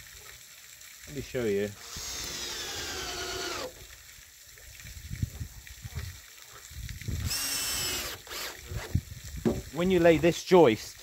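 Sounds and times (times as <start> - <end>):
power drill whirring: 1.8 - 3.7, 7.2 - 8.9
timber knocks and thuds: 9.4 - 10.2.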